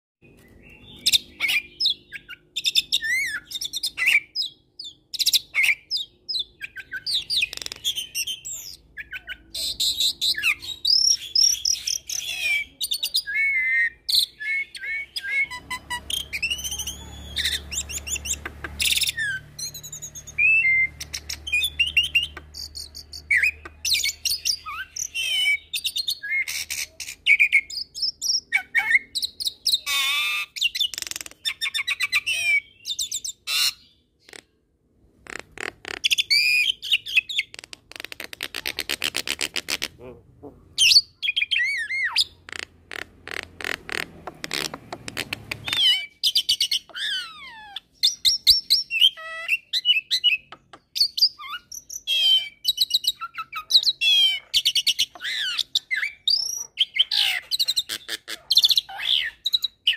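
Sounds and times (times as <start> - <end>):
bird singing whistles and trills: 0.3 - 34.0, 36.1 - 37.5, 45.6 - 57.9.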